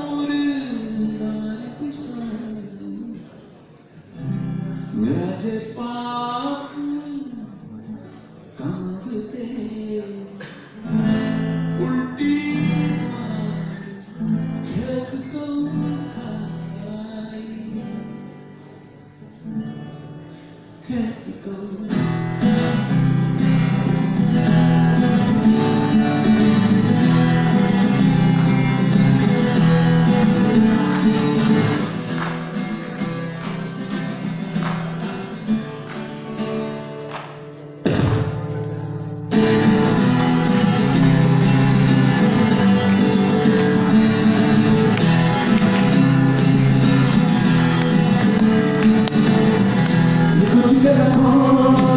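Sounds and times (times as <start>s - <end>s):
acoustic guitar strumming: 0.0s - 3.2s, 4.1s - 51.9s
man singing: 0.0s - 3.3s, 4.9s - 18.3s, 20.8s - 24.4s, 47.8s - 51.9s.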